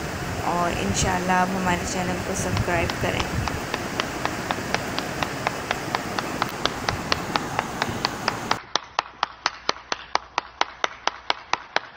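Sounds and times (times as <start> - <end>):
hiss: 0.0 - 8.6
steady sharp ticking: 0.0 - 8.6.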